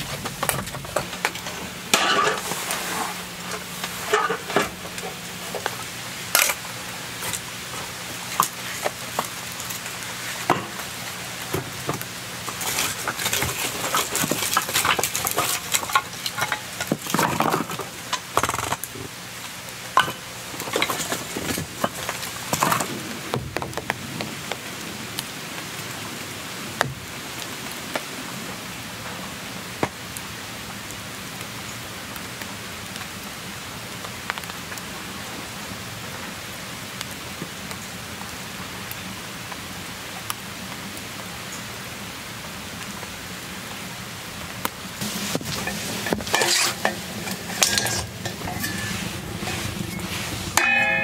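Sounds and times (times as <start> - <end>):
knocks and clatters: 0.0 - 2.5
steady rain hiss: 0.0 - 51.0.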